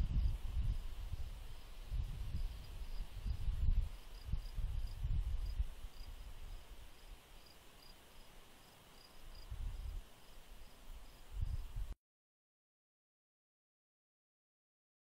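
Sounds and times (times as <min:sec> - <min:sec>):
low gusty rumble: 0:00.0 - 0:06.5
cricket chirping: 0:00.1 - 0:11.6.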